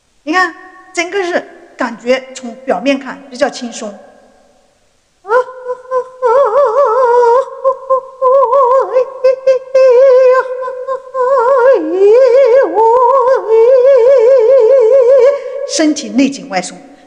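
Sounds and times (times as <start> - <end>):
woman vocalising with vibrato: 5.2 - 16.1.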